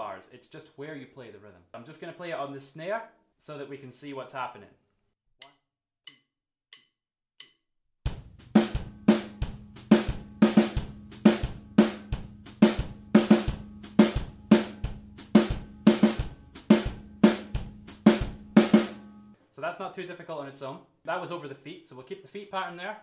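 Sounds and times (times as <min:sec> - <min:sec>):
drum stick clicks: 0:05.4 - 0:07.6
foot-closed hi-hat: 0:06.1 - 0:19.0
bass drum: 0:08.1 - 0:19.0
snare drum groove: 0:08.1 - 0:19.0.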